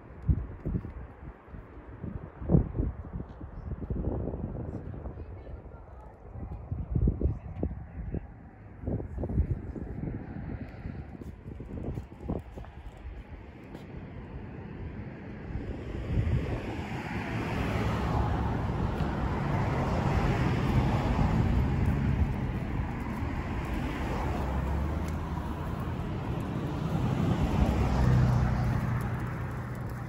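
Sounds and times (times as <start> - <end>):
road traffic passing: 8.2 - 30.0.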